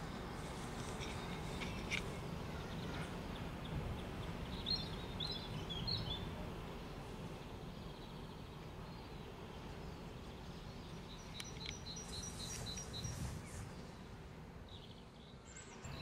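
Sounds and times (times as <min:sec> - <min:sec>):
small bird chirping: 0:07.6 - 0:14.0.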